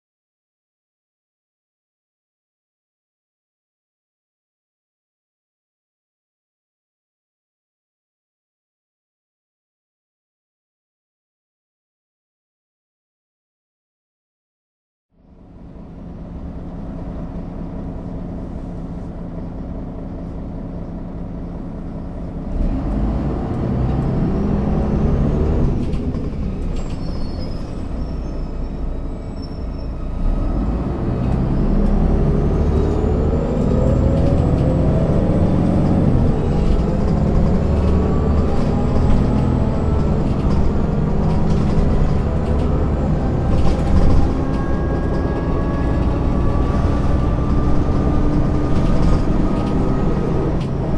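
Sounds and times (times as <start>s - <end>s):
bus diesel engine: 15.2s - 50.9s.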